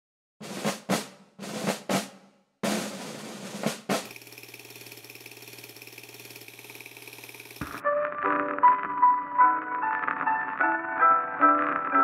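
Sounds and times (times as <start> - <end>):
fast rattle: 4.0 - 7.8.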